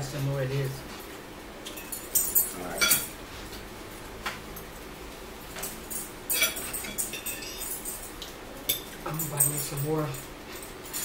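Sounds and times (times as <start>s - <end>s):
forks clinking on plates: 1.6s - 3.2s, 5.5s - 11.0s.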